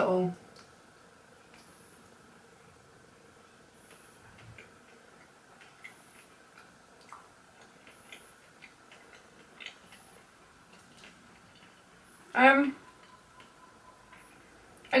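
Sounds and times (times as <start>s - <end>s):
low room hum: 0.0s - 15.0s
chewing mouth clicks and smacks: 3.9s - 12.0s.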